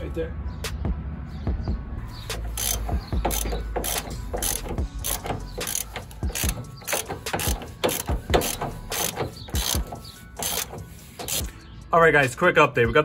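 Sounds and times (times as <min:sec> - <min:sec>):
ratchet wrench clicking: 0:02.4 - 0:11.5.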